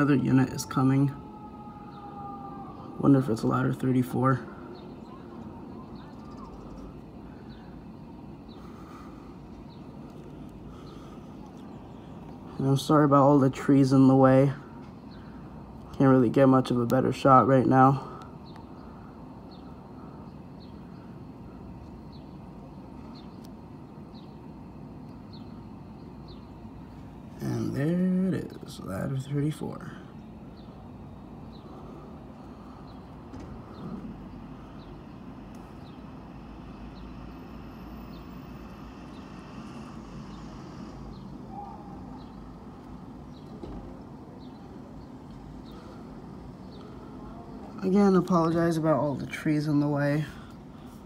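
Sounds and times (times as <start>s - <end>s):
city traffic rumble: 0.0s - 51.0s
small bird chirping: 3.2s - 13.5s, 18.3s - 50.9s
faint high chirps: 4.5s - 12.6s, 37.0s - 46.1s.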